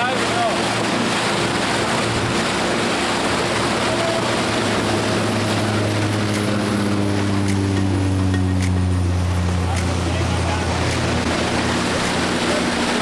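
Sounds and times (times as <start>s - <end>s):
boat noise: 0.0s - 13.0s
propeller plane drone: 0.0s - 13.0s.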